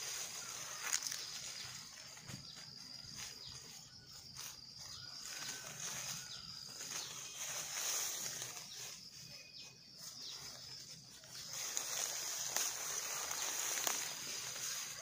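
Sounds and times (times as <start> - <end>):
dry leaves rustling and crackling: 0.0 - 15.0
insects buzzing: 0.0 - 15.0
stems snapping: 11.8 - 14.2.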